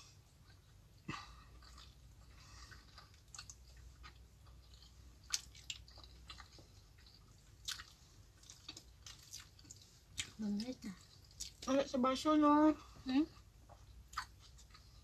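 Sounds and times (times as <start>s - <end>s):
wet chewing and mouth clicks: 0.4s - 11.8s, 13.4s - 15.0s.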